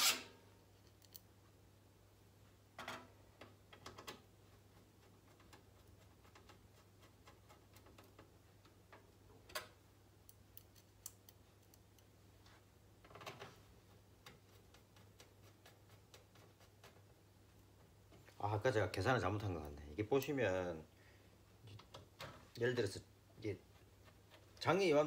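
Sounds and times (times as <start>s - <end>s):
screwdriver turning metal screws: 0.0s - 0.3s.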